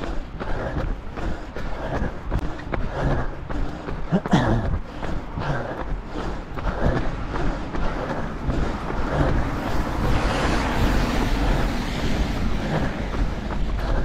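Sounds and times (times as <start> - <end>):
traffic on a wet road: 0.0 - 14.0
wind rumble on microphone: 4.5 - 14.0
van tyres hissing on wet road: 9.5 - 13.7.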